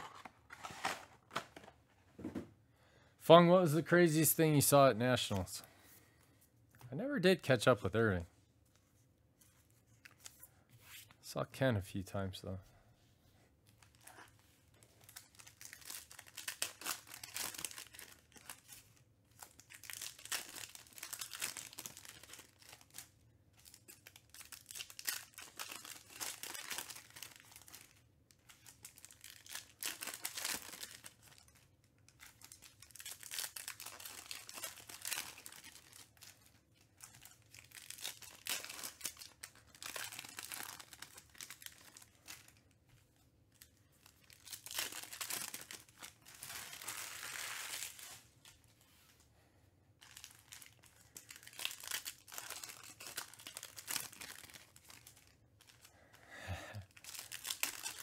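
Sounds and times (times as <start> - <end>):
foil wrappers tearing and crinkling: 15.0 - 31.6, 32.2 - 42.6, 44.0 - 48.2, 50.0 - 55.9, 56.9 - 58.0.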